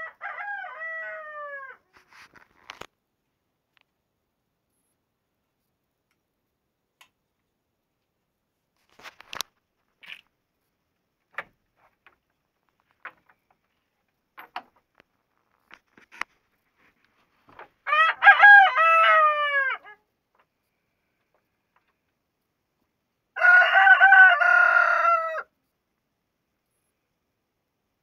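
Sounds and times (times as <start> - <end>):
rooster crowing: 0.0 - 1.8, 17.9 - 20.0, 23.4 - 25.5.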